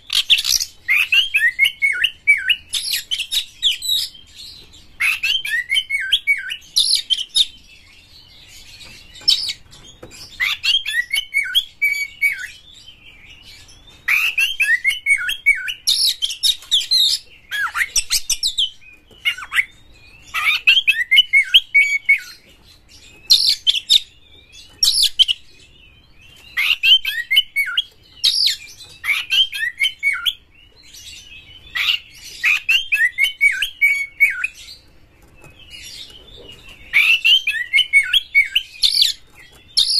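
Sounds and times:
bird singing whistles and rasps: 0.0 - 39.9.

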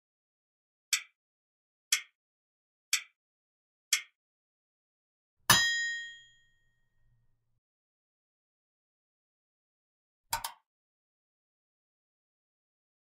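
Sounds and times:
timer ticks: 0.9 - 1.2, 1.9 - 2.2, 2.9 - 3.2, 3.9 - 4.2
bright bell-like ding: 5.5 - 6.6.

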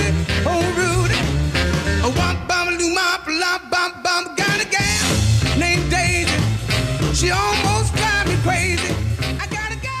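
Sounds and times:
upbeat rock and roll song: 0.0 - 10.0.

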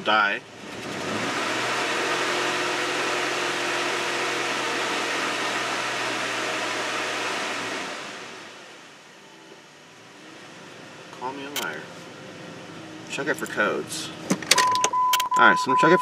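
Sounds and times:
car engine revving: 0.0 - 9.0.

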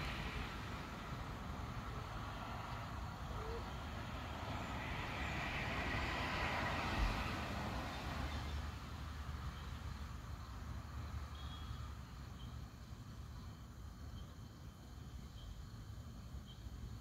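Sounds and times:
vehicle passing by: 0.0 - 12.0.

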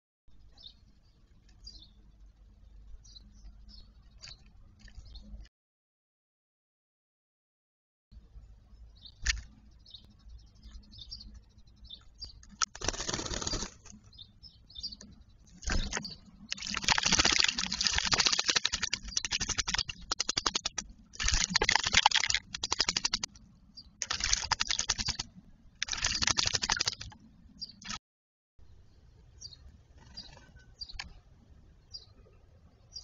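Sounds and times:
bird splashing in water: 15.6 - 23.3, 24.0 - 25.2, 25.8 - 27.1.

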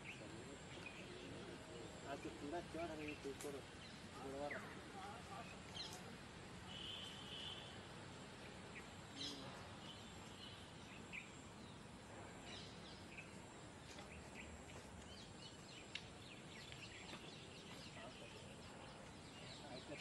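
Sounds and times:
small bird chirps: 12.4 - 20.0.

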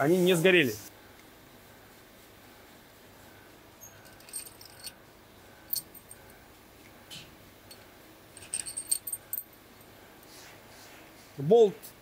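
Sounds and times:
metal tools clinking: 3.8 - 5.0, 5.7 - 6.2, 7.7 - 9.5.

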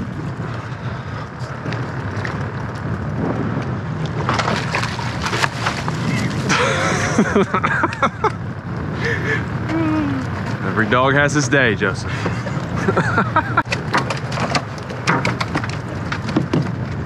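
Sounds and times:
wind noise on microphone: 0.0 - 17.0
fish splashing at surface: 4.3 - 6.4
voices calling out: 5.9 - 14.1.

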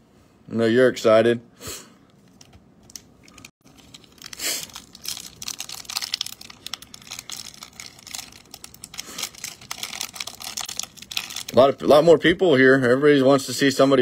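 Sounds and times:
foil wrapper crinkling and tearing: 3.6 - 11.8.

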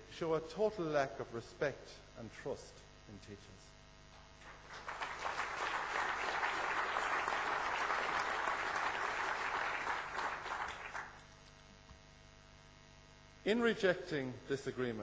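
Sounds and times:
audience applauding: 4.4 - 11.2.

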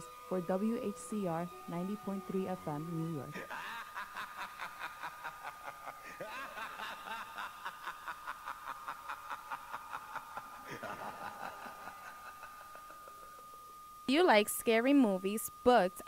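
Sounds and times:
thin high-pitched tone: 0.0 - 3.5, 10.2 - 16.0
people laughing: 3.4 - 13.4.

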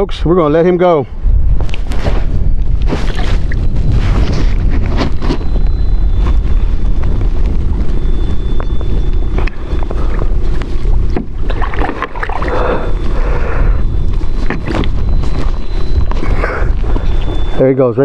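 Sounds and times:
wind buffeting microphone: 0.0 - 18.0
water splashing and sloshing: 2.8 - 4.1, 10.5 - 13.1.

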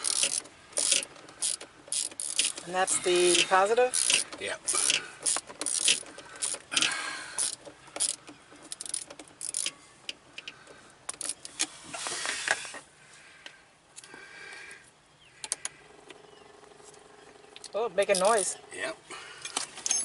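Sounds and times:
hand tools clinking on metal: 19.4 - 20.0.

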